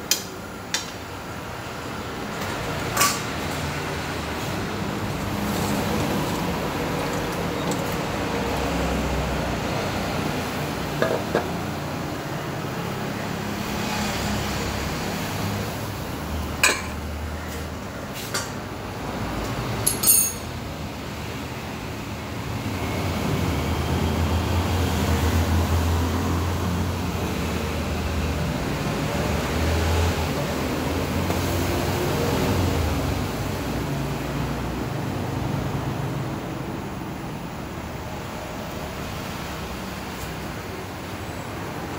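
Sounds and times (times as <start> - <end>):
kitchen utensils clinking: 19.9 - 20.5.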